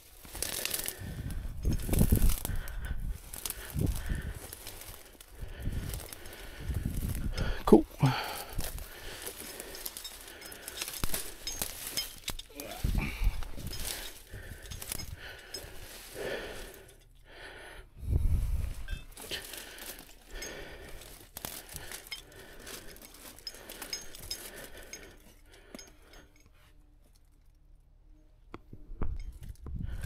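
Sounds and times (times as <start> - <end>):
dry brush crackling and snapping: 0.0 - 17.0, 18.7 - 25.2
light metallic clinks: 5.7 - 17.3, 18.8 - 28.3, 29.0 - 29.6.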